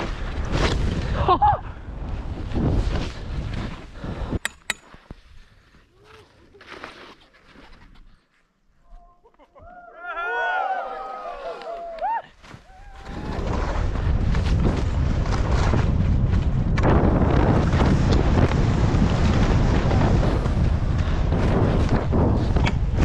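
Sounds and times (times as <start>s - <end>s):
skis running through snow: 2.1s - 4.3s, 12.4s - 23.0s
wind rushing over microphone: 12.8s - 23.0s.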